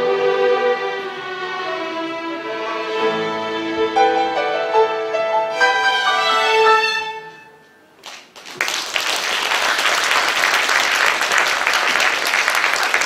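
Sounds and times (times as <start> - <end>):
violin ensemble playing: 0.0 - 7.7
audience applauding: 8.0 - 13.0.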